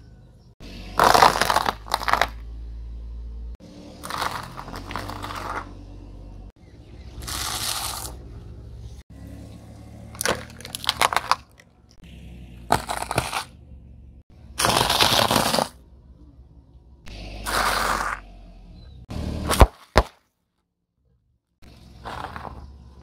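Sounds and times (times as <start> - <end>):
car tyre crushing objects: 0.6 - 2.7, 3.8 - 6.0, 7.0 - 16.0, 17.1 - 20.4, 21.6 - 23.0
sharp cracks: 0.9 - 2.5, 10.1 - 12.1, 12.7 - 13.6, 14.5 - 15.8, 19.4 - 20.3.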